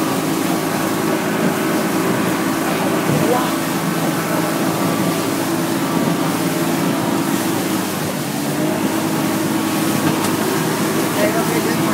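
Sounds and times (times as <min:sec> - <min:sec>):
boat engine running: 0:00.0 - 0:11.9
water splashing along hull: 0:00.0 - 0:11.9.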